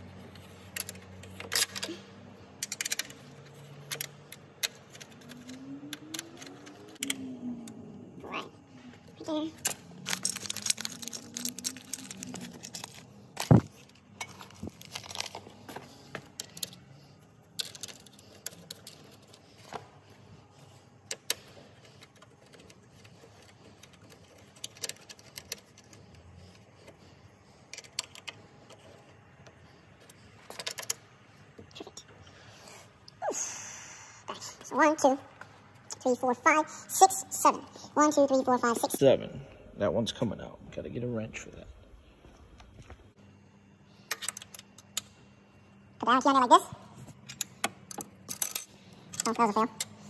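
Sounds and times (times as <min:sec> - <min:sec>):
plastic bag crinkling: 0:10.0 - 0:13.6.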